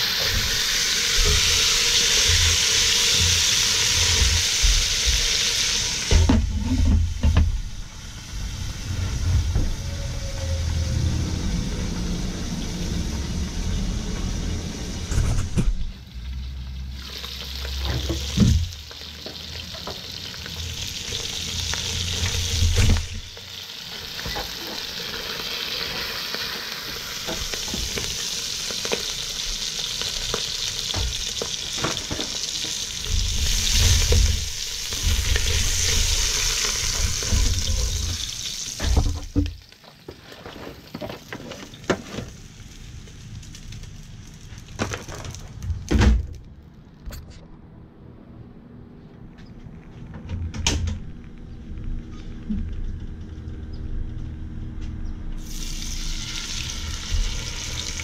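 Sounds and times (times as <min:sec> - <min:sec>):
fish sizzling in oil: 0:00.0 - 0:06.4, 0:16.2 - 0:45.3, 0:55.4 - 0:58.0
low rumbling: 0:06.2 - 0:17.0.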